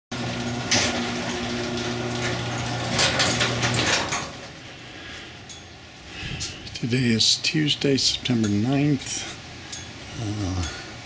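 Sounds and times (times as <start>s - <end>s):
garage door opener clack: 0.1s - 4.6s
garage door opener motor hum: 0.1s - 4.8s.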